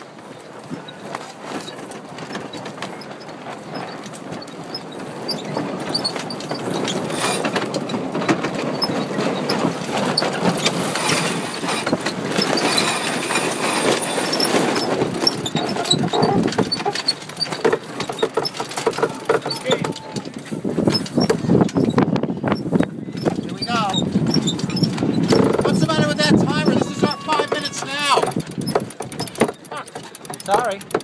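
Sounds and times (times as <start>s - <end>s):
winch ratcheting: 4.2s - 31.0s.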